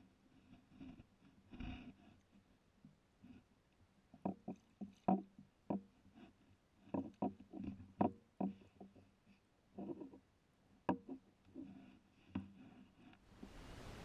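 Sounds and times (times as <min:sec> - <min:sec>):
reed stems brushing: 0:13.3 - 0:14.0
water sloshing: 0:13.3 - 0:14.0.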